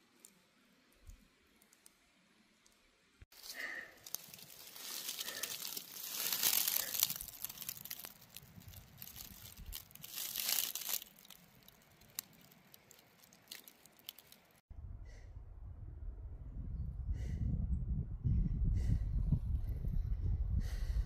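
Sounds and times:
dry leaves rustling and crackling: 0:03.3 - 0:14.6.

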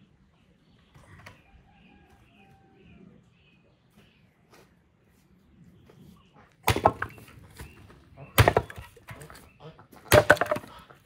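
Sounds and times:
split wood pieces knocking down: 0:06.6 - 0:07.7, 0:08.4 - 0:09.4, 0:10.0 - 0:10.8
axe splitting wood: 0:06.6 - 0:09.4, 0:10.0 - 0:10.9.

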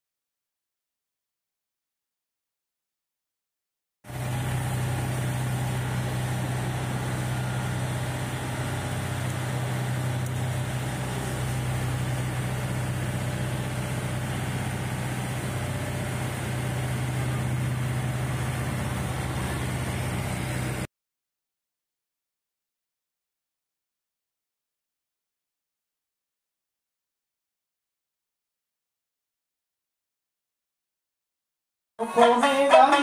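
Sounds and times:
motorboat engine humming: 0:04.1 - 0:20.9
wind: 0:04.1 - 0:20.9.

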